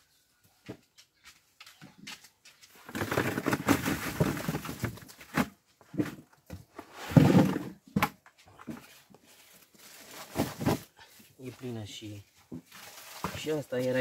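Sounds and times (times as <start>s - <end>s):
cucumbers clattering into box: 2.8s - 6.4s, 10.0s - 10.9s.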